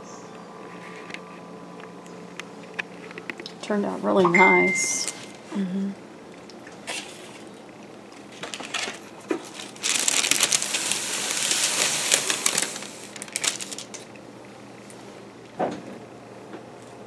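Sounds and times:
plastic sheet crinkling: 8.3s - 14.2s.

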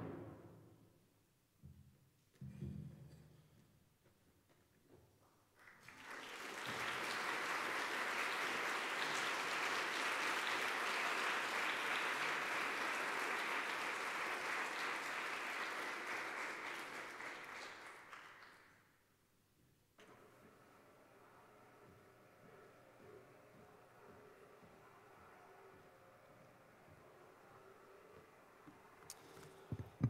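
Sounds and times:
audience applauding: 5.6s - 18.8s.

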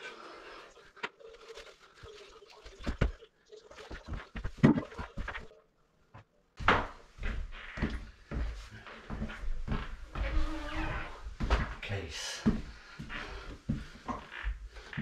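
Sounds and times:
footsteps on tiled floor: 6.1s - 15.0s.

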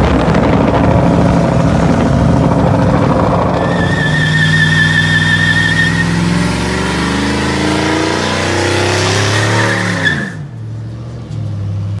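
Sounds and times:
truck engine revving: 0.0s - 11.9s
tyre squealing on pavement: 3.0s - 7.2s, 9.3s - 10.5s.

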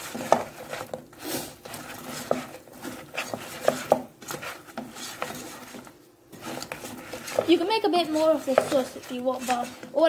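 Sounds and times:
wooden spatula scraping frying pan: 0.0s - 10.0s.

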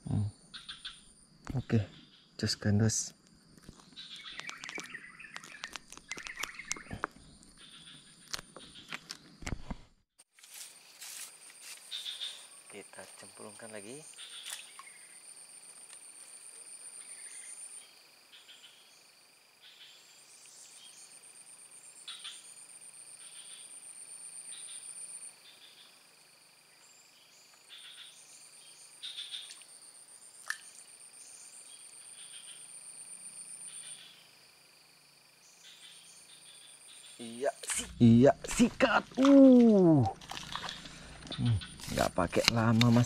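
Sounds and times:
frog calls: 3.7s - 9.1s, 11.9s - 15.2s, 29.0s - 29.7s, 33.5s - 34.3s, 35.6s - 43.0s
high insect drone: 10.4s - 43.0s.

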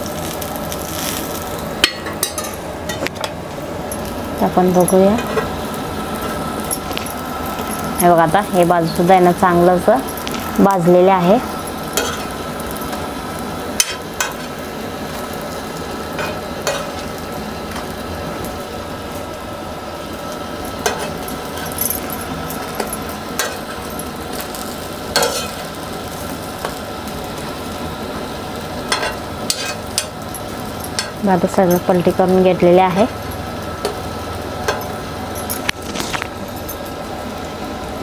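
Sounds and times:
slices sizzling in oil: 0.0s - 38.0s
metal spoon scraping a pan: 12.0s - 12.4s, 25.1s - 25.6s, 28.9s - 30.2s.

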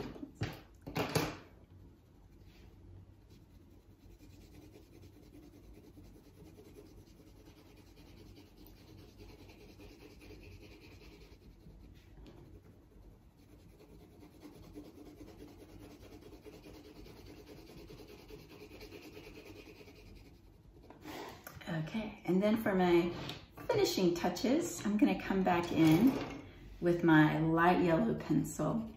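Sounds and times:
pencil scratching on paper: 2.3s - 20.9s.

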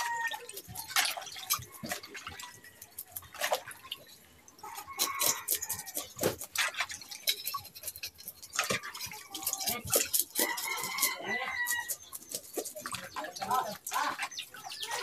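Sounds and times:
fish being washed in water: 0.0s - 15.0s
chicken clucking: 4.6s - 15.0s.

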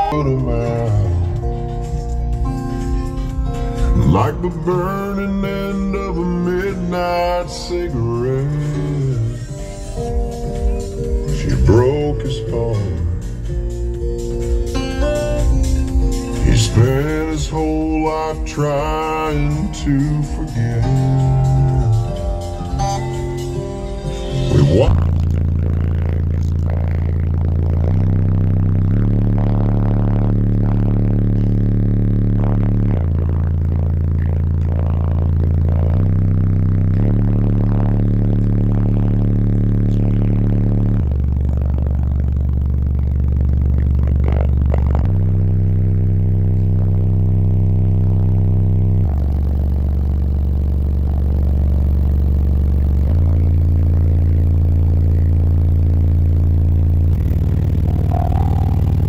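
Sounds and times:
deep bass notes from subwoofers: 0.0s - 59.0s.

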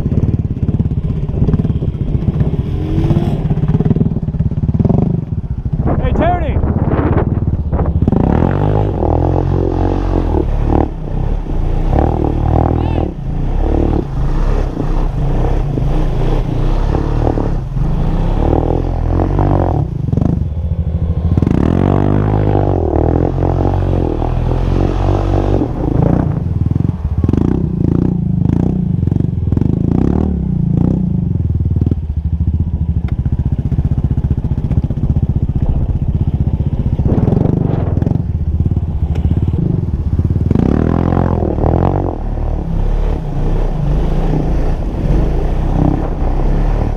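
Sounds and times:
atv engine revving: 0.0s - 46.9s.

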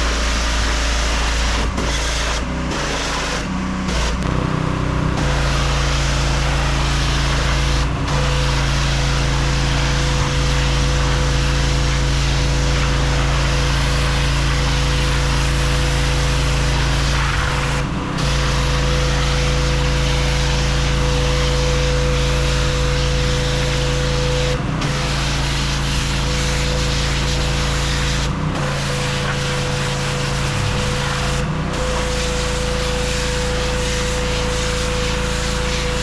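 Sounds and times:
high-pressure spray hitting a wall: 0.0s - 36.0s
pressure washer engine: 0.0s - 36.0s.

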